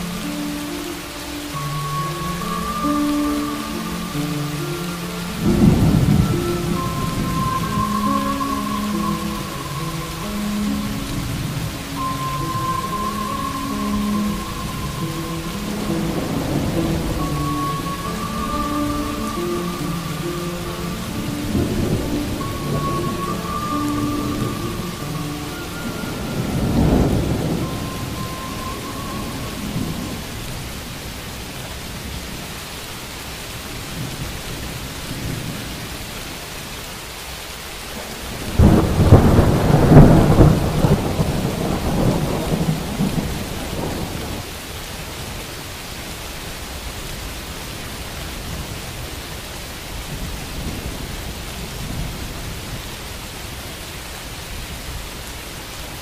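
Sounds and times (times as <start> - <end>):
steady rainfall: 0.0 - 56.0
thunder rumbling: 1.6 - 32.5, 38.0 - 45.3.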